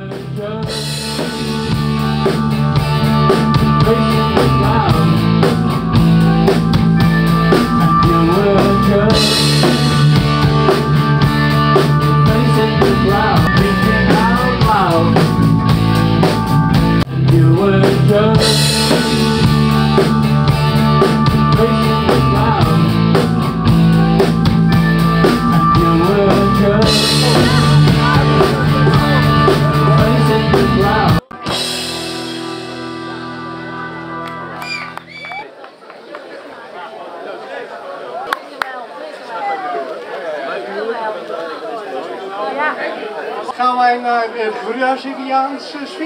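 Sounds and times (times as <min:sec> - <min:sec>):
live rock band playing: 0:00.0 - 0:35.4.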